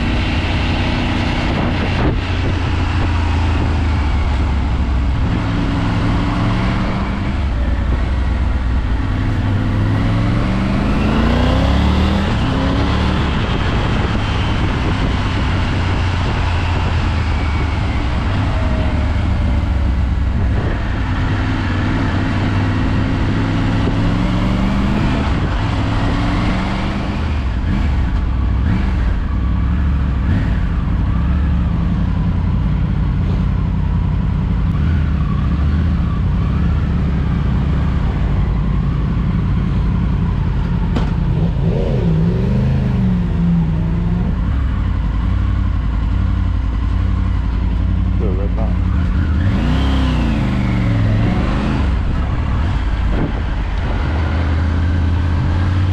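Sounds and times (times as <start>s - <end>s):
wind noise on microphone: 0.0s - 29.4s, 49.0s - 55.9s
motorcycle engine: 0.0s - 55.9s.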